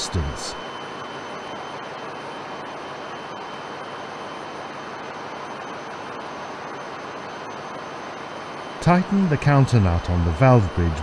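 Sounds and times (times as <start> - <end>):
faint high whines: 0.0 - 11.0.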